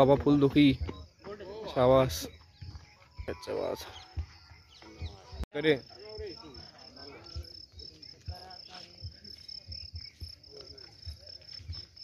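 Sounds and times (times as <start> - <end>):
faint voices: 0.0 - 12.0
crickets trilling: 5.6 - 12.0.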